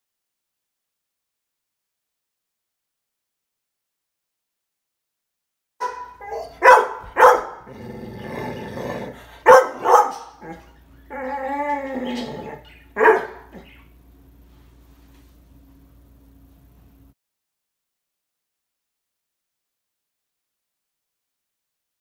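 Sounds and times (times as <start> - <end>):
dog barking: 5.8 - 7.8, 9.4 - 10.6, 13.0 - 13.7
dog howling: 5.8 - 13.9
dog growling: 6.2 - 13.8.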